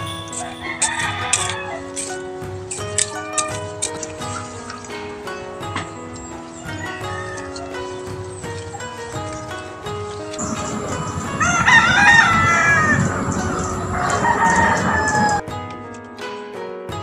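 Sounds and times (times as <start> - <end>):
background noise: 0.0 - 16.7
background music: 0.0 - 17.0
rooster crowing: 0.4 - 2.0, 10.4 - 15.4.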